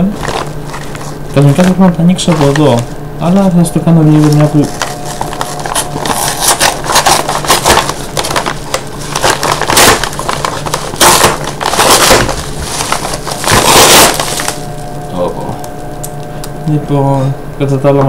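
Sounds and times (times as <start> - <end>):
paper ripping: 0.0 - 2.9, 4.0 - 15.2
paper crinkling and crackling: 0.0 - 3.0, 3.7 - 16.5.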